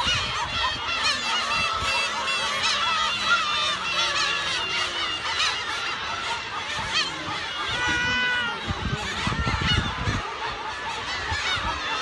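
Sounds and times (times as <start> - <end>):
chorus of gulls calling: 0.0 - 12.0.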